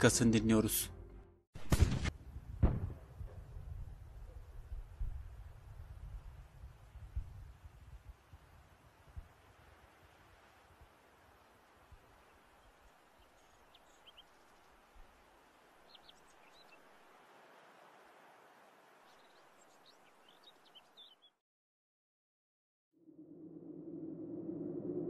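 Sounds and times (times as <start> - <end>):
faint steady hiss: 4.4 - 21.2.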